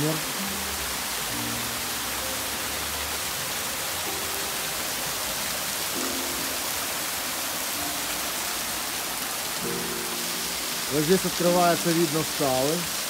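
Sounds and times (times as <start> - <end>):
running water hiss: 0.0 - 13.0
soft background music: 0.0 - 13.0.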